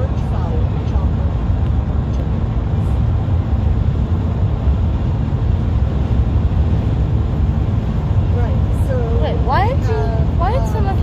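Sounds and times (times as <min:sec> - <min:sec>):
tyre and road noise: 0:00.0 - 0:11.0
wind: 0:00.0 - 0:11.0.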